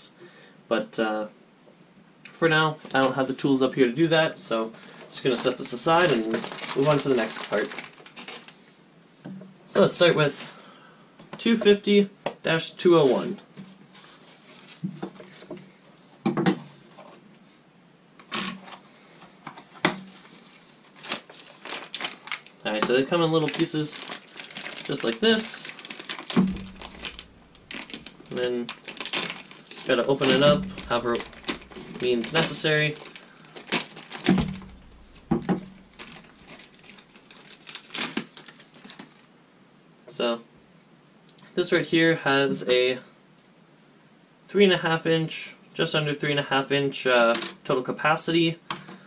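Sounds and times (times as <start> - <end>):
plastic bag crinkling: 4.8 - 8.6, 20.0 - 39.3
cardboard rustling: 5.0 - 8.5, 19.6 - 39.2
box knocks and clinks: 34.2 - 36.6.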